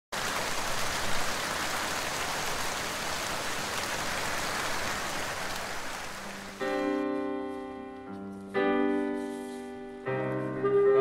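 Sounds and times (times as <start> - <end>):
rain on wet pavement: 0.1 - 6.9.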